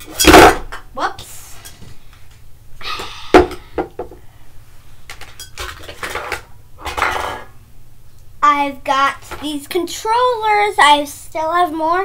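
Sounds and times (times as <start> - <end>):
small objects clattering and clinking: 5.1 - 7.5.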